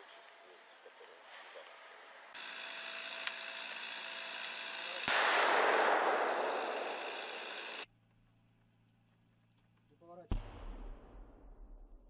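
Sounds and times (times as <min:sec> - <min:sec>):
multi-tone whine: 0:02.2 - 0:07.9
sharp blast: 0:05.0 - 0:07.5, 0:10.3 - 0:12.0.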